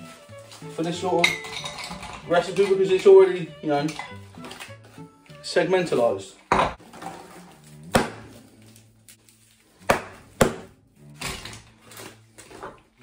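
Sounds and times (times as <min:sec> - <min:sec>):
faint background music: 0:00.0 - 0:13.0
knocks on kitchen worktop: 0:06.5 - 0:06.8.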